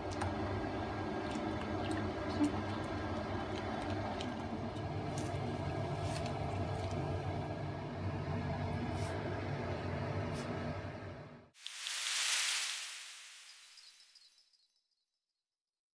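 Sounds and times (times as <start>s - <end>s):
gas stove rushing hum: 0.0s - 11.5s.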